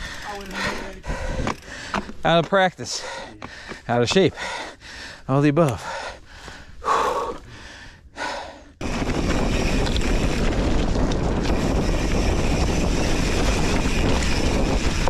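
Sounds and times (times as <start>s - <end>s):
mountain bike rolling: 0.0s - 5.1s, 8.8s - 15.0s
wind rushing over microphone: 8.8s - 15.0s.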